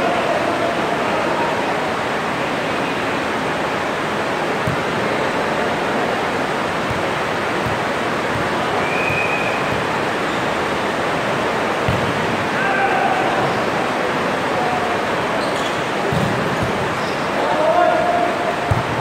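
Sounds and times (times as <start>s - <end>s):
rushing noise in gym hall: 0.0s - 19.0s
faint ball thumps: 4.6s - 10.6s, 11.8s - 12.5s, 16.1s - 17.0s, 18.6s - 19.0s
shoe squeak: 15.4s - 15.8s, 17.0s - 17.3s.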